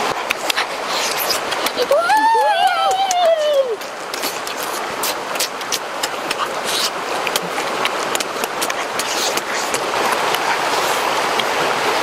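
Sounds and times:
stream rushing: 0:00.0 - 0:12.0
close-up chewing: 0:04.1 - 0:11.5.

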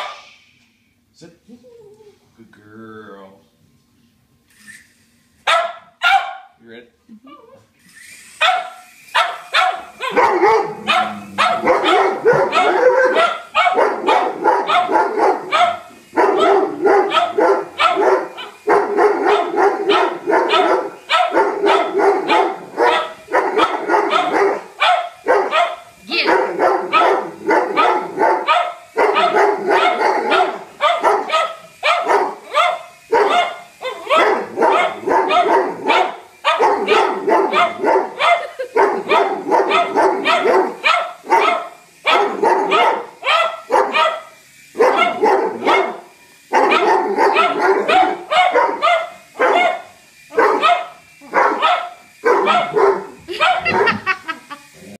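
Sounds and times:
dogs barking loudly: 0:00.0 - 0:00.3, 0:05.5 - 0:06.5, 0:08.4 - 0:55.0.

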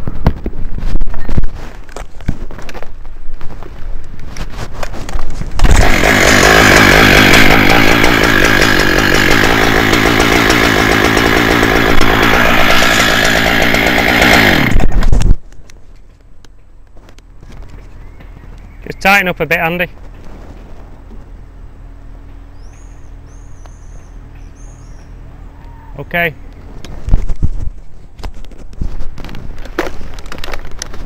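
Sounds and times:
chainsaw cutting at high revs: 0:05.6 - 0:15.1.

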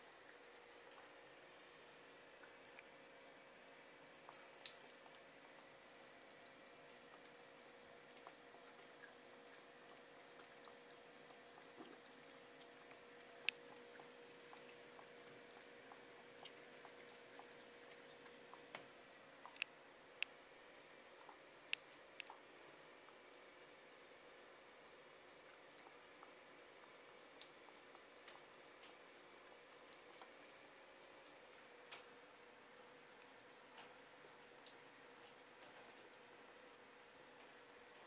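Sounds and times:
water drips: 0:00.0 - 0:38.0
water trickling from faucet: 0:00.0 - 0:38.0
cat lapping water: 0:04.2 - 0:31.8.

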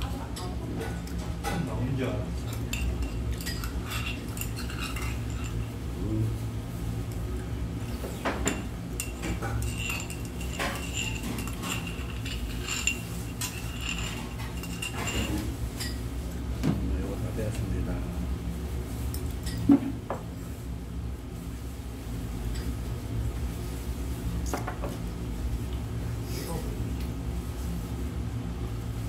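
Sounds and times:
low room hum: 0:00.0 - 0:29.0
utensils clinking on ceramic bowls: 0:00.3 - 0:05.8, 0:08.1 - 0:16.0.

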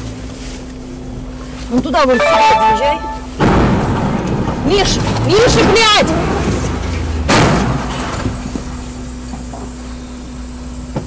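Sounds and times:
vehicle engine hum: 0:00.0 - 0:11.0
vehicle collision crash: 0:02.2 - 0:09.0.

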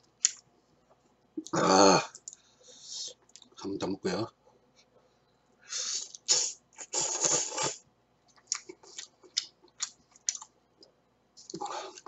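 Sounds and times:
person slurping noodles: 0:05.8 - 0:07.8
chewing smacks and clicks: 0:08.3 - 0:10.5.

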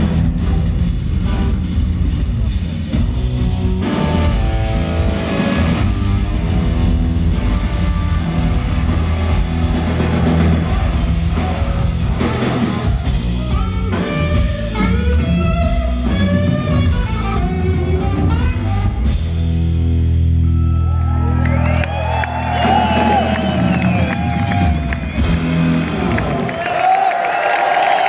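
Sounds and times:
drum kit: 0:00.0 - 0:20.3, 0:21.5 - 0:27.1
bass guitar: 0:00.0 - 0:26.9
crowd cheering: 0:08.7 - 0:13.8, 0:20.4 - 0:28.0.

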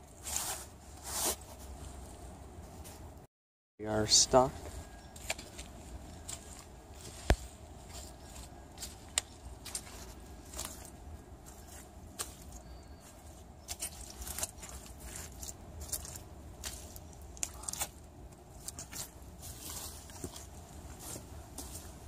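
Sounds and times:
footsteps squelching in mud: 0:05.2 - 0:22.0.

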